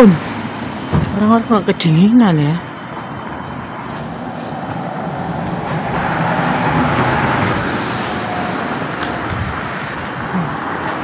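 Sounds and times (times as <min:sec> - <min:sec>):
car driving past: 0:03.6 - 0:11.0.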